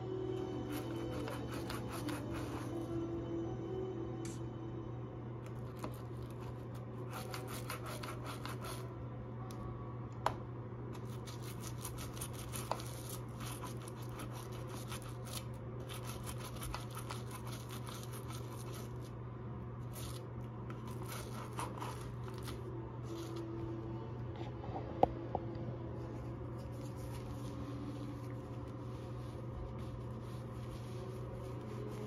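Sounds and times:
steady low hum: 0:00.0 - 0:32.0
toothbrush scrubbing plastic: 0:00.6 - 0:02.9, 0:05.6 - 0:08.9, 0:11.0 - 0:19.1, 0:19.8 - 0:23.5, 0:26.5 - 0:32.0.

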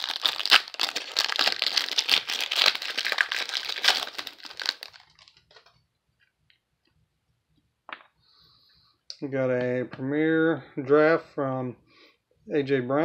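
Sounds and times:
foil wrapper crinkling and tearing: 0:00.0 - 0:05.7.

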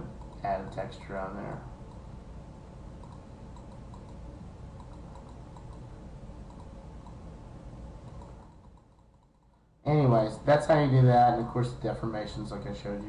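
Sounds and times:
steady low hum: 0:00.0 - 0:13.0
computer clicking: 0:00.1 - 0:00.5, 0:03.0 - 0:07.2, 0:08.0 - 0:09.6.

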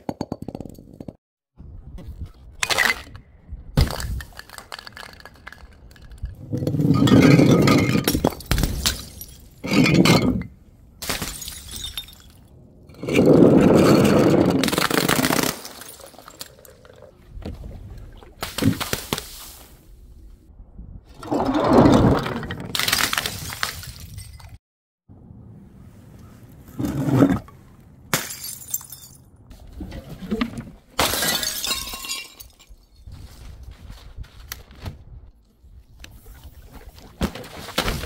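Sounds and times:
glass bottles shattering: 0:06.6 - 0:12.5, 0:13.7 - 0:16.9, 0:28.1 - 0:29.3, 0:31.0 - 0:33.0.

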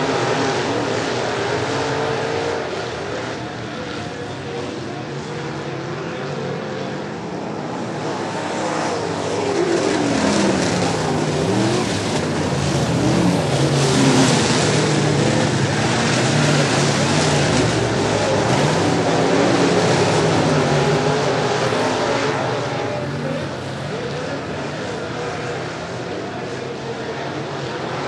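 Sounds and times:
race car engines racing: 0:00.0 - 0:28.0.

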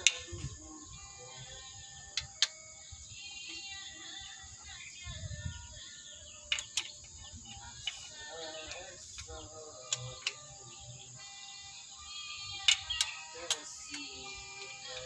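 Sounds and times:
faint background music: 0:00.0 - 0:15.0.

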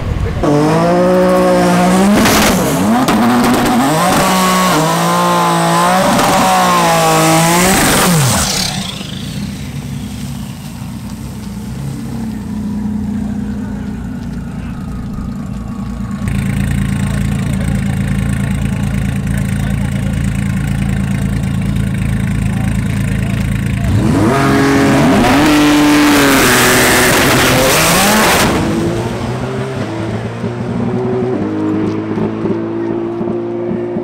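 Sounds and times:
car launching with loud surge: 0:00.0 - 0:11.0, 0:23.9 - 0:30.5
car engine revving: 0:00.0 - 0:34.0
low engine hum: 0:00.0 - 0:34.0.

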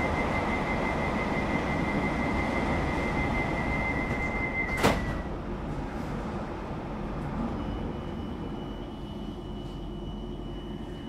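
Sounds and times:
high warning tone: 0:00.0 - 0:05.0
low train rumble: 0:00.0 - 0:11.0
train doors shutting thud: 0:04.0 - 0:05.4.

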